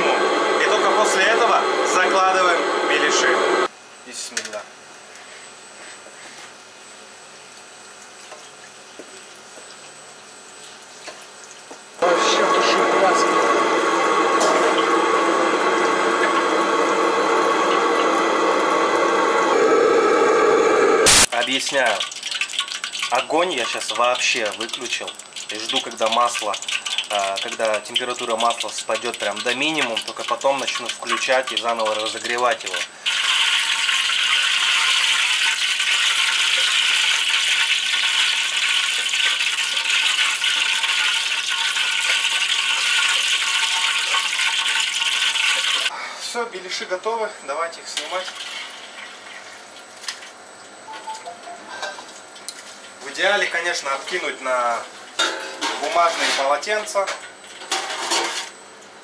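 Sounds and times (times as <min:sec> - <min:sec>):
steady hum: 0:00.0 - 0:04.4, 0:12.0 - 0:21.4
food sizzling in oil: 0:06.6 - 0:45.9, 0:48.0 - 0:53.0.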